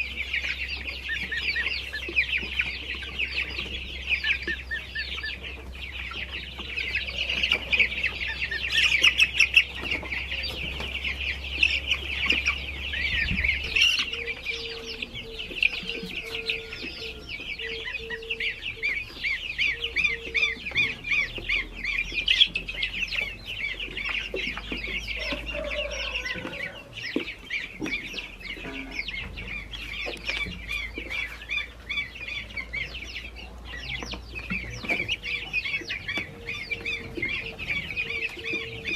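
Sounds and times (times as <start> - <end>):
baby chicks peeping: 0.0 - 38.9.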